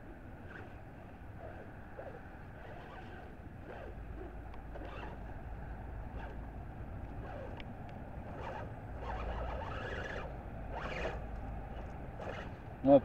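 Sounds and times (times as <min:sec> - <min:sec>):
electric motor whining: 0:01.4 - 0:05.3, 0:07.2 - 0:12.6.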